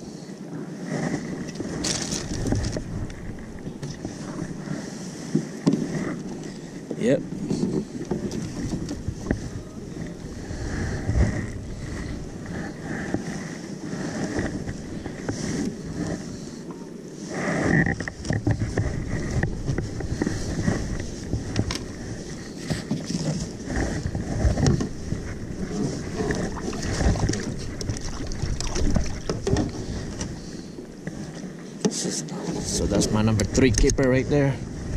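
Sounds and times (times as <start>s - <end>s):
water lapping against hull: 0.0s - 34.9s
wind buffeting microphone: 0.9s - 31.4s, 32.4s - 34.9s
gear knocks and clicks: 33.3s - 34.2s.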